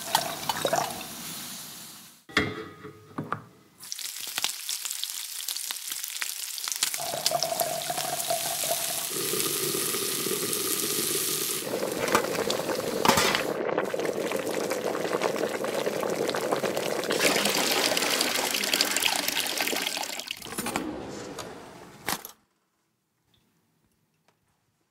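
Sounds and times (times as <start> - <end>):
meat sizzling: 3.8 - 20.0
water bubbling and splashing: 11.6 - 20.4.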